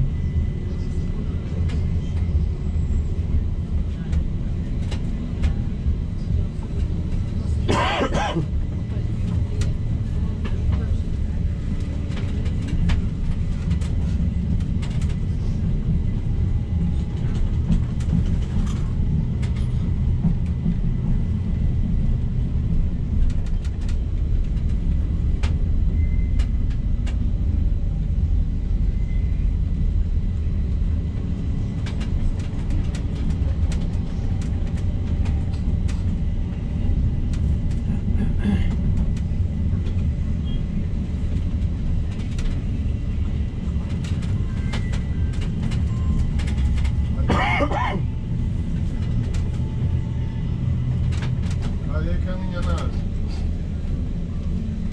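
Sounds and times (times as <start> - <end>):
tram rumbling on track: 0.0 - 54.9
light clicks and rattles: 41.0 - 42.7, 43.6 - 47.6, 50.8 - 51.8, 52.5 - 53.4.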